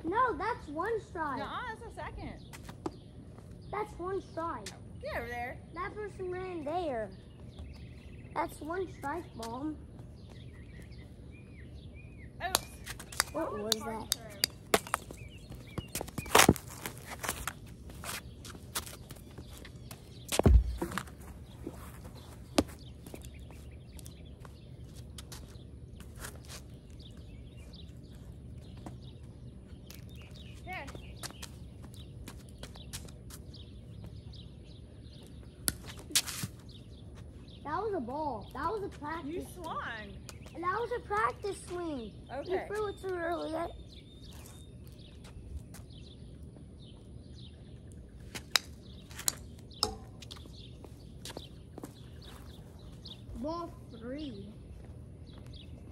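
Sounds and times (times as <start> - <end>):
bird chirps: 0.6 - 16.6
footsteps on asphalt: 2.4 - 3.7, 6.5 - 37.6, 43.8 - 55.9
plastic ball bouncing on pavement: 12.4 - 21.3, 22.5 - 25.6, 35.1 - 36.6, 48.3 - 52.0.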